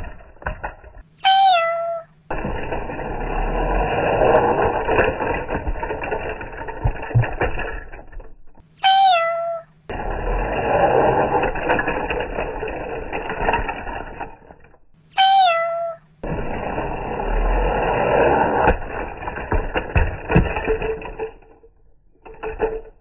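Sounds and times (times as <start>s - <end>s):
toy train motor whirring: 1.1s - 8.0s, 8.6s - 21.6s
short high-pitched call: 1.2s - 2.1s, 8.8s - 9.7s, 15.1s - 16.0s.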